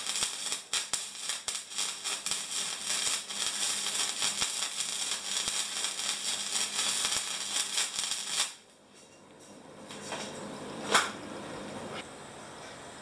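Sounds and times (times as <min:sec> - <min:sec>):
welding arc crackling and sizzling: 0:00.0 - 0:09.0.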